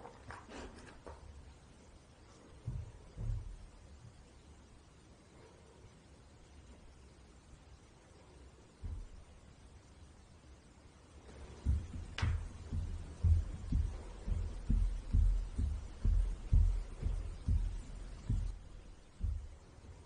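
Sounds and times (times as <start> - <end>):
dull low thumps: 2.6 - 4.2, 8.8 - 9.6, 11.3 - 20.0.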